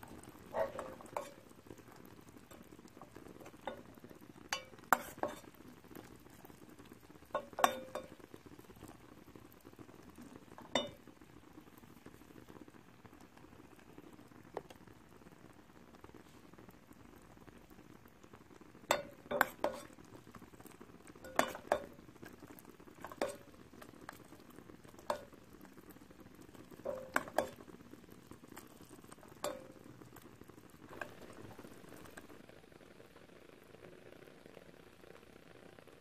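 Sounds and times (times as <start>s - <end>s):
sugar syrup bubbling in a pan: 0.0s - 36.0s
utensil clinking against pan: 21.3s - 22.0s, 26.8s - 27.6s.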